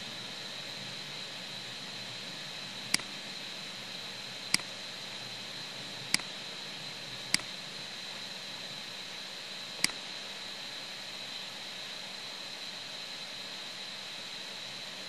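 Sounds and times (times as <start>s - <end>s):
steady hiss: 0.0s - 15.0s
computer mouse clicks: 2.9s - 3.1s, 4.5s - 4.7s, 9.8s - 10.0s.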